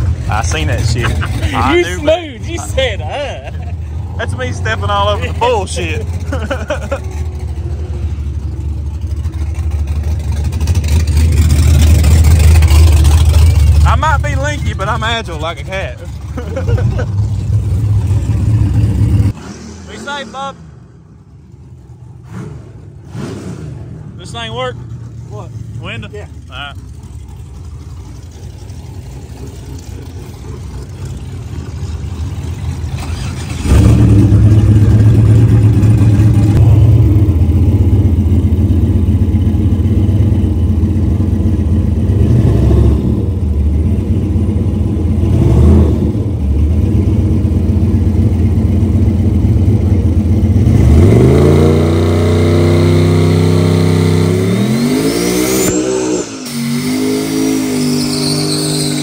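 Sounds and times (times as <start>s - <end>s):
car engine revving: 0.0s - 59.0s
high turbo whistle: 54.4s - 59.0s.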